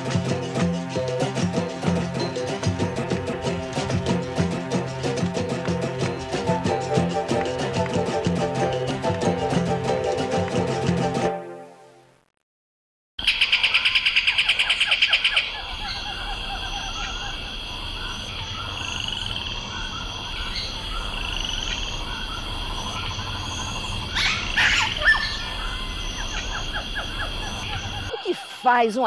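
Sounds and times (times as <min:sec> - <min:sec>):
birds chirping: 0:13.2 - 0:29.0
frogs calling: 0:13.2 - 0:29.0
rapid pulsing call: 0:13.2 - 0:29.0.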